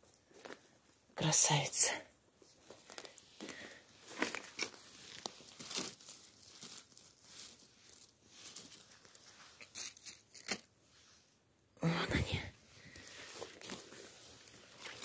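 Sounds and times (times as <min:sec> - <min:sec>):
dry twigs crackling and rustling: 0:02.6 - 0:10.6.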